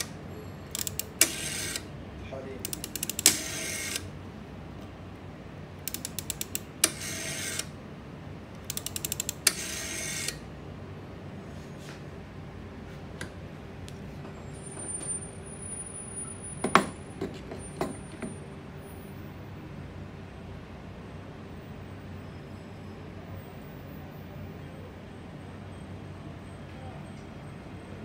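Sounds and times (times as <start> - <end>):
dial whirring back: 0.0 - 1.9, 2.6 - 4.1, 5.8 - 7.8, 8.6 - 10.4
rotary telephone dial clicks: 0.7 - 1.9, 2.6 - 4.1, 5.8 - 7.7, 8.6 - 10.4.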